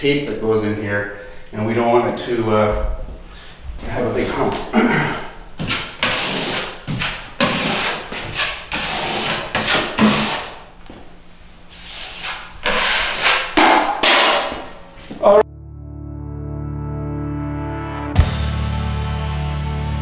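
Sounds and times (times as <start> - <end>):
taping knife scraping drywall: 5.6 - 10.7, 11.7 - 14.3.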